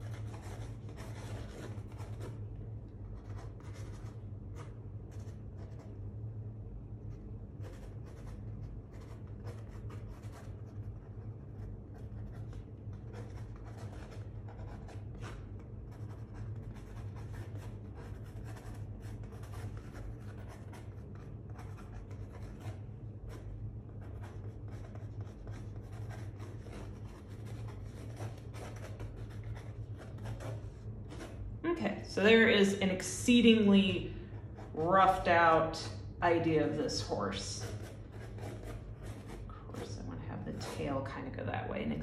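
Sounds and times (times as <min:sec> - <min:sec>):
pen scratching on paper: 0:00.0 - 0:02.4, 0:03.0 - 0:05.9, 0:07.6 - 0:31.5, 0:36.4 - 0:41.0
steady low hum: 0:00.0 - 0:42.0.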